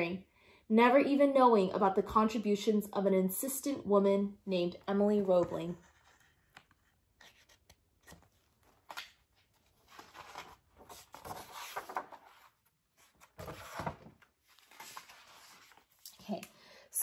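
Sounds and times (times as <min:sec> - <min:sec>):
book pages rustling: 0:05.2 - 0:16.2.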